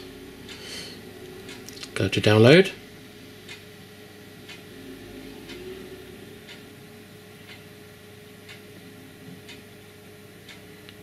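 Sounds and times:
low steady hum: 0:00.0 - 0:11.0
faint regular ticking: 0:00.4 - 0:03.8, 0:04.4 - 0:04.7, 0:06.4 - 0:06.7, 0:07.4 - 0:07.8, 0:08.4 - 0:08.8, 0:09.4 - 0:11.0.

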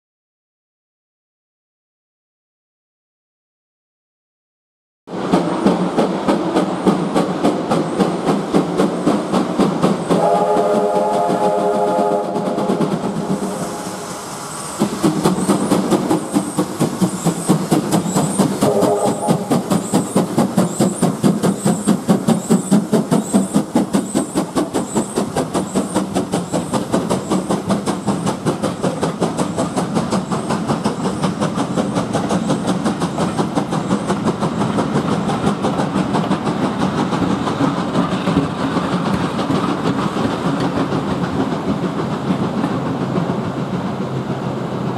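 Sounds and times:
steam locomotive exhaust beats: 0:05.1 - 0:44.9
steam locomotive whistle: 0:10.1 - 0:14.5, 0:18.6 - 0:19.8
wheels clattering on rail joints: 0:14.6 - 0:44.9.

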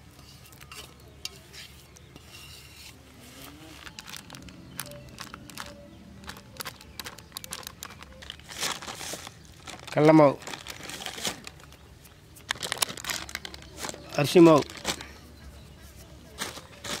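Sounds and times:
plastic packet rustling: 0:03.5 - 0:11.8, 0:12.4 - 0:15.2, 0:16.4 - 0:17.0.

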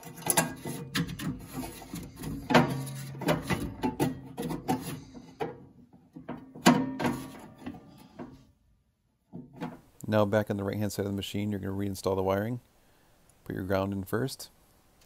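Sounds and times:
wires scraping on sheet metal: 0:00.0 - 0:05.7.

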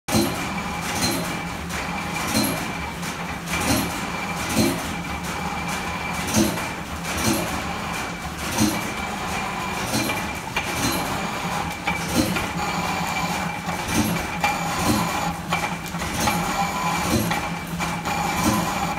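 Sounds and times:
sharp mechanical clack: 0:00.1 - 0:05.4, 0:09.8 - 0:11.2.

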